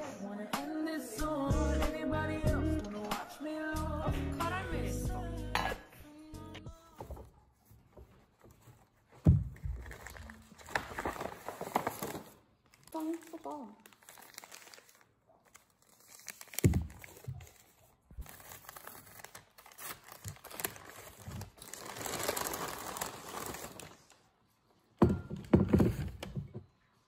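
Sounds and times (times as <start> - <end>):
paper wrapping crinkling: 7.6 - 24.3.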